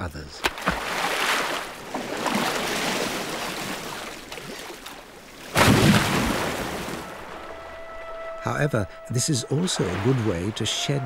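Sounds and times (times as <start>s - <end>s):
churning water: 0.0s - 11.0s
loud splash: 0.4s - 7.5s, 9.5s - 11.0s.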